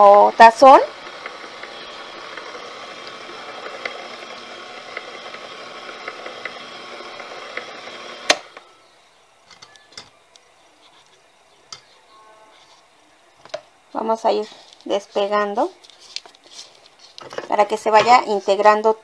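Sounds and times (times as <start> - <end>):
stand mixer motor running: 0.0 - 8.6.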